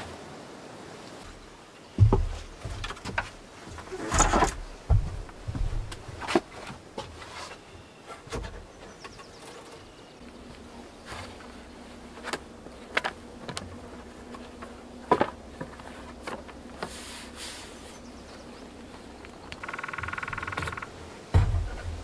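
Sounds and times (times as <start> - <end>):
insect buzzing: 19.6 - 21.1
wooden board knocks: 20.4 - 22.0.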